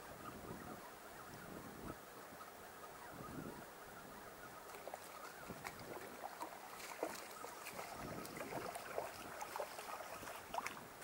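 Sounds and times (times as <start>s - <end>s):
water splashing: 4.6s - 11.0s.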